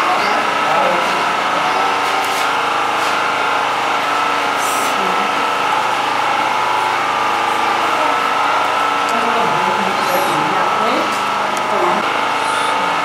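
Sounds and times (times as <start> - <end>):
motor hum: 0.0 - 13.0.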